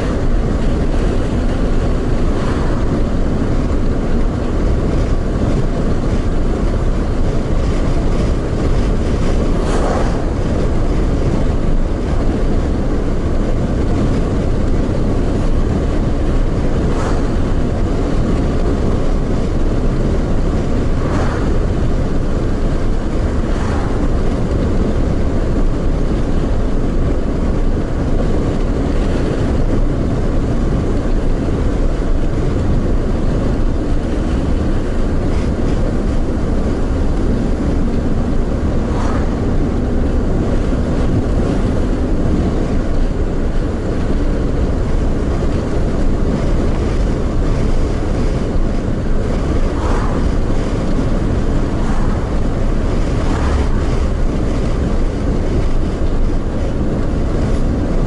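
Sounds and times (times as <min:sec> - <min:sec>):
tyre and road noise: 0:00.0 - 0:58.0
passing whooshes: 0:08.2 - 0:11.2, 0:16.8 - 0:18.5, 0:20.3 - 0:24.5, 0:37.2 - 0:41.8, 0:49.2 - 0:54.9.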